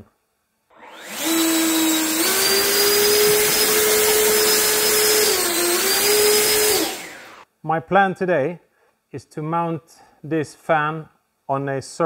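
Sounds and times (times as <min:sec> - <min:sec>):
electric fan whine: 0:00.8 - 0:07.4.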